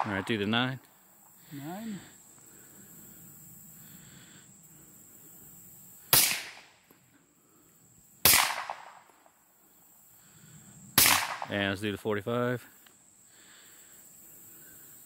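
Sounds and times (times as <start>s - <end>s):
suppressed pistol shots: 6.1s - 6.7s, 8.2s - 9.1s, 11.0s - 11.5s.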